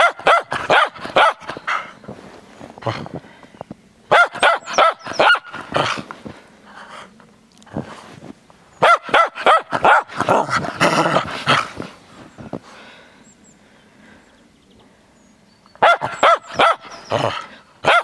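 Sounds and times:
dog barking: 0.0s - 1.5s, 4.1s - 6.0s, 8.8s - 10.7s, 15.8s - 18.0s.

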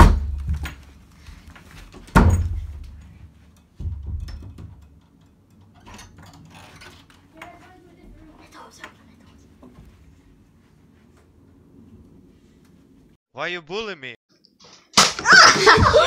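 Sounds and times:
heavy thud against door: 2.1s - 2.8s.

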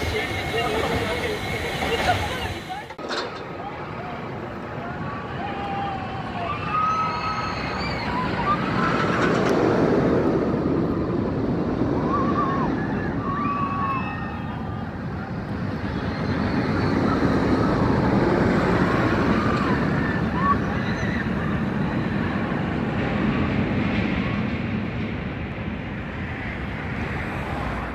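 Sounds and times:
roller coaster train rumbling: 0.0s - 27.9s
riders screaming: 5.0s - 9.2s, 11.9s - 22.0s.

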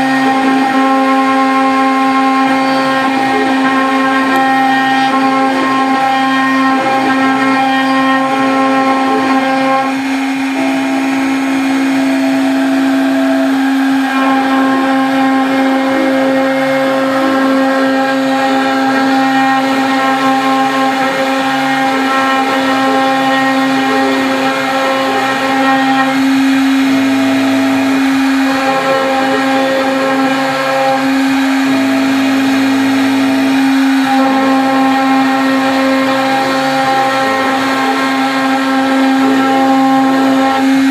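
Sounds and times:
low motor tones: 0.0s - 40.9s
router spindle high whine: 0.0s - 40.9s.

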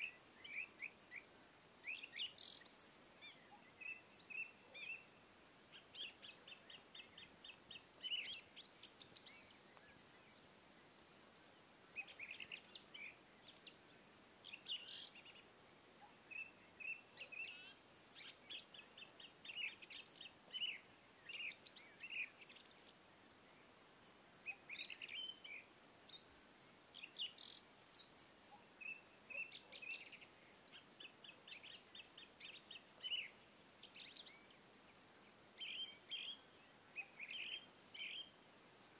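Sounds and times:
birds chirping and trilling: 0.0s - 10.8s, 11.9s - 23.0s, 24.4s - 38.9s.

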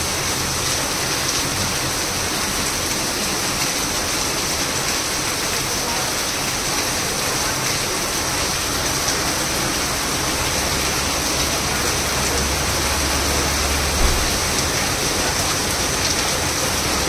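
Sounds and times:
heavy rain on pavement: 0.0s - 17.0s
short thump: 14.0s - 14.4s.

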